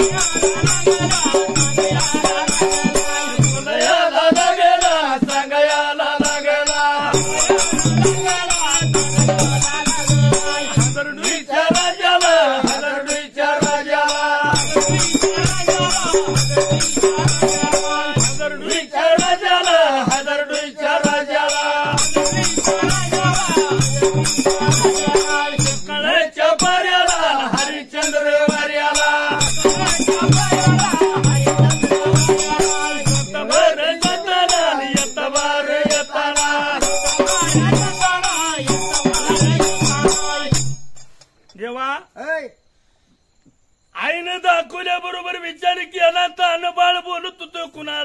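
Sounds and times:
men singing in a group: 0.0s - 40.8s
drum beats: 0.0s - 41.2s.

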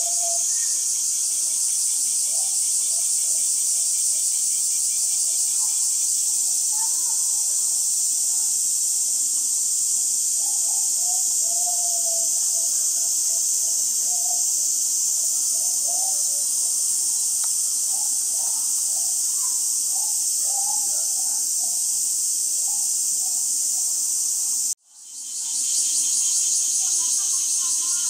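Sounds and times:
high-pitched insect drone: 0.0s - 28.0s
faint voices: 10.5s - 21.8s, 26.4s - 28.0s.

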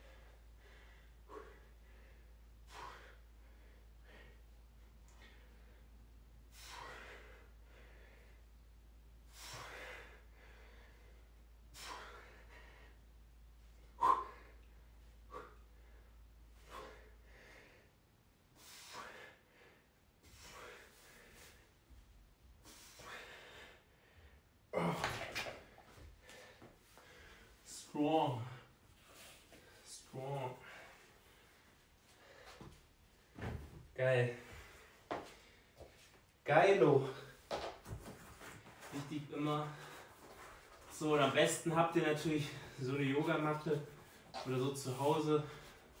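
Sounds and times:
man breathing hard: 0.0s - 21.9s, 22.5s - 27.8s, 30.6s - 32.9s, 34.4s - 36.2s
man grunting: 24.7s - 25.4s.

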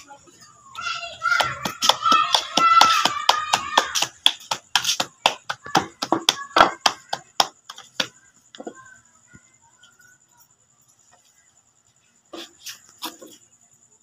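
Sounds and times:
dough slapped between palms: 1.2s - 8.2s.

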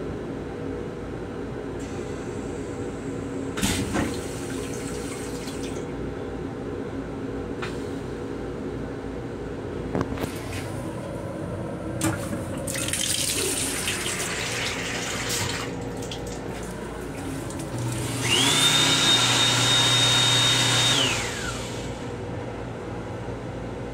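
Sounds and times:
water running from faucet: 12.7s - 19.4s
hand dryer blower whine: 16.9s - 22.2s.

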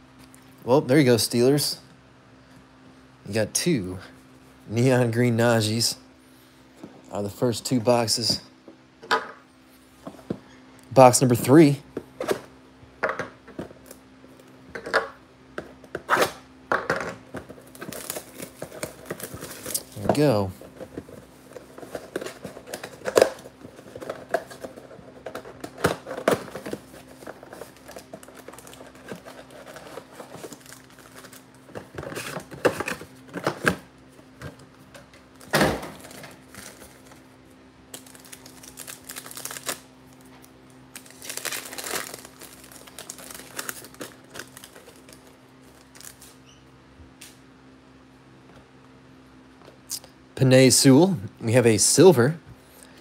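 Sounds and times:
steady low hum: 0.0s - 53.0s
plastic wrappers crinkling and tearing: 17.4s - 33.6s, 35.4s - 37.3s, 37.9s - 46.4s.

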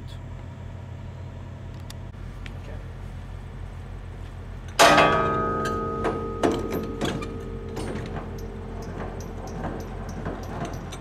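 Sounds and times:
truck diesel engine idling: 0.0s - 11.0s
handle clicks and knocks: 4.7s - 11.0s
metal crank handle clanking: 4.7s - 11.0s.

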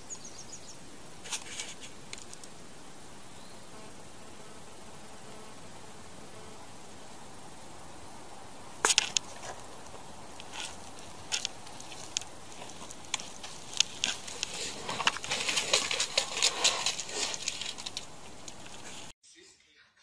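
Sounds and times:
steady hiss: 0.0s - 19.1s
cat claws scratching bark: 8.8s - 19.1s.

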